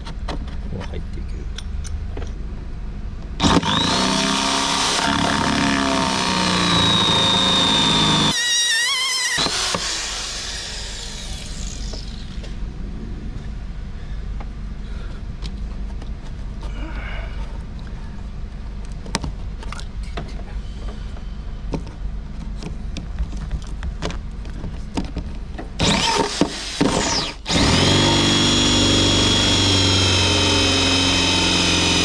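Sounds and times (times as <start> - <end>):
drill squealing: 3.4 - 12.4, 25.8 - 32.0
electric drill whining: 3.4 - 12.5, 25.8 - 32.0.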